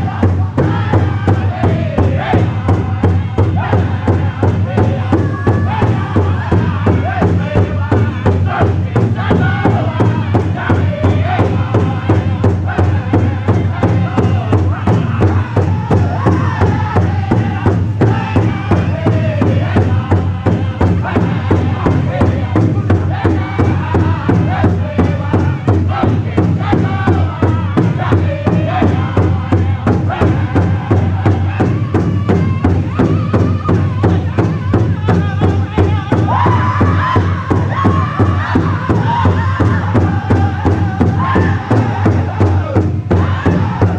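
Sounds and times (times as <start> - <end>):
group singing in unison: 0.0 - 43.9
large drum steady beat: 0.0 - 43.9.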